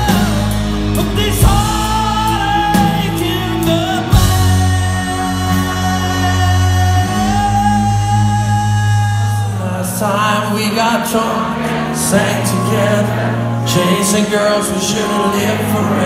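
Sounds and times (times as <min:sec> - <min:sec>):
live rock band playing: 0:00.0 - 0:16.0
person singing: 0:00.0 - 0:16.0.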